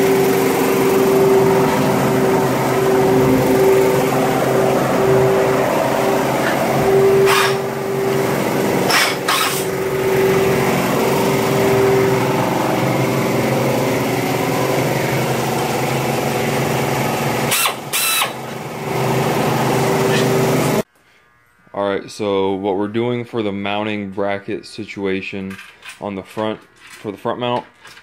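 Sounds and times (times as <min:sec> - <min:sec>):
air drill drilling steel: 0:00.0 - 0:20.9.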